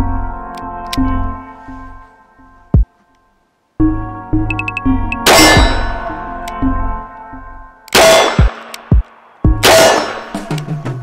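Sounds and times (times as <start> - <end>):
background music with steady beat: 0.0 - 11.0
handgun shots: 5.3 - 5.9, 7.9 - 10.4
steel plate clanging: 5.3 - 6.1.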